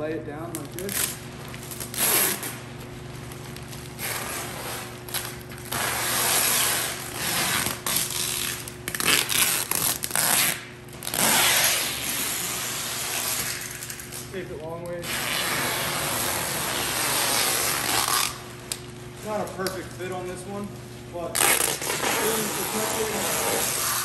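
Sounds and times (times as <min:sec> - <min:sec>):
plastic bag rustling and scraping: 0:00.7 - 0:10.3, 0:11.1 - 0:18.4, 0:19.2 - 0:24.0.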